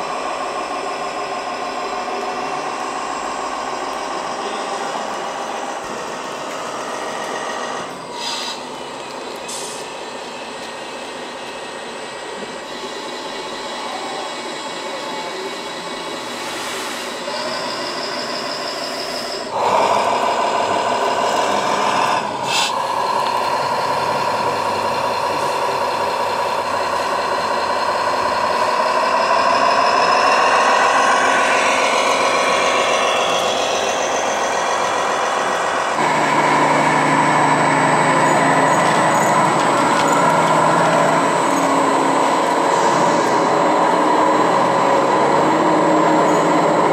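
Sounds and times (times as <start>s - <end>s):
deeper engine sound: 0.0s - 16.6s, 19.3s - 46.9s
diesel engine sound from small speakers: 19.5s - 46.9s.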